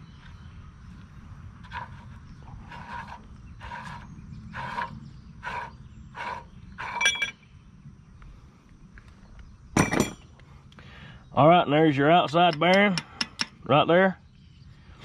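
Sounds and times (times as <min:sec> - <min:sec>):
rasping sound: 0:01.6 - 0:07.3
ringing metal clink: 0:07.0 - 0:07.4, 0:09.8 - 0:10.2
loud metal clank: 0:09.8 - 0:10.2.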